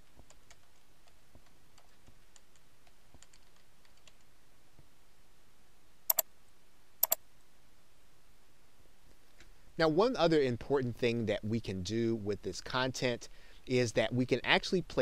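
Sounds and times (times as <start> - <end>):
keyboard typing: 1.8 - 4.2.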